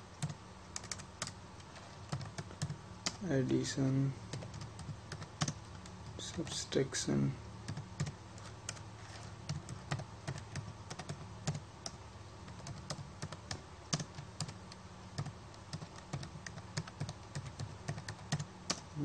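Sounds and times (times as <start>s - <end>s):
typing on computer keyboard: 0.2s - 1.4s, 2.1s - 3.2s, 4.3s - 5.9s, 7.7s - 8.8s, 9.5s - 18.9s.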